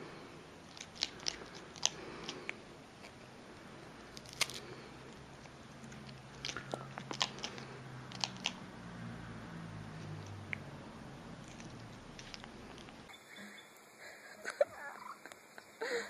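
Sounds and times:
parrot biting and chewing: 0.6s - 13.1s.

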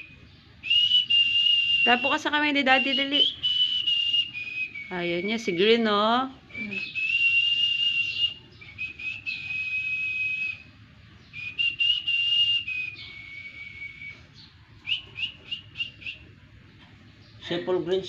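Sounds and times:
person whistling notes: 6.5s - 10.6s.

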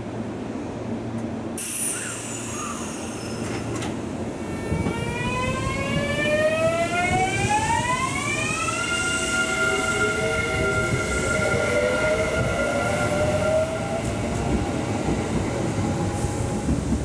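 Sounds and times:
high thin squeal: 1.6s - 3.8s.

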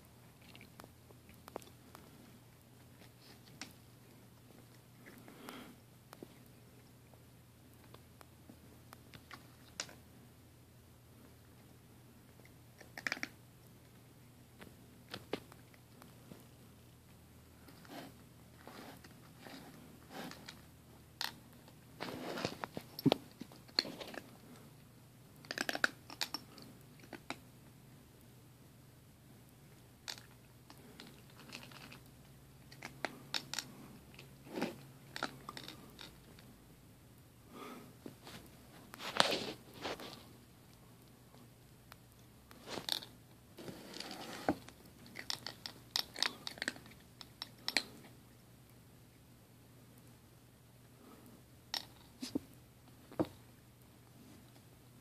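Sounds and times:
cat crunching dry kibble: 0.3s - 5.5s, 9.0s - 10.0s, 11.5s - 14.0s, 14.6s - 27.5s, 29.8s - 36.5s, 42.5s - 48.3s, 51.7s - 52.3s
rustling and shuffling: 14.6s - 20.7s, 21.6s - 24.7s, 37.6s - 40.6s, 42.5s - 45.1s.

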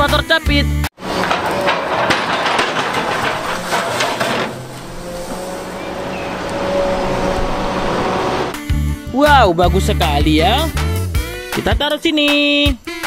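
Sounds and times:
dense clatter of knocks: 1.0s - 6.9s
diesel engine running: 1.0s - 8.6s
faint hydraulic whine: 3.1s - 8.5s.

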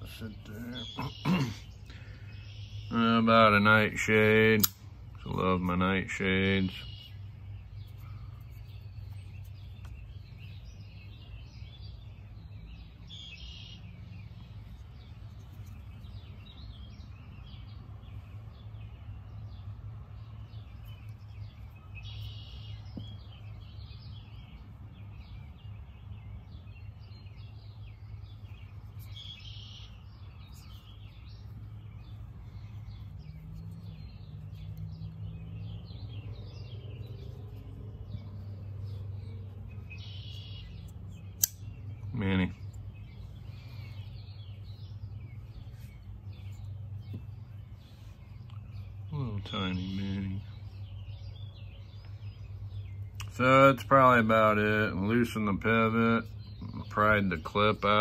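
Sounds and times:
birds chirping and calling: 0.0s - 58.0s
steady low hum: 0.0s - 58.0s.

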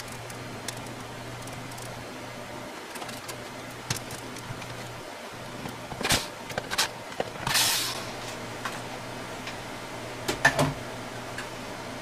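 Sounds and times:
low steady hum: 0.0s - 12.0s
sharp clicks and knocks: 2.9s - 4.9s.

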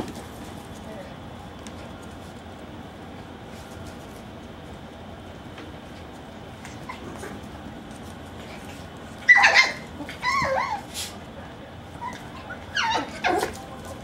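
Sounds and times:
puppies yipping and barking: 9.2s - 10.9s, 12.0s - 13.8s.

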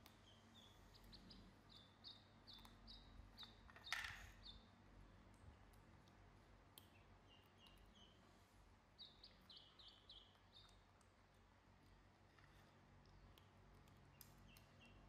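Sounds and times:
ducklings peeping: 0.0s - 4.7s, 6.7s - 8.2s, 8.9s - 15.0s.

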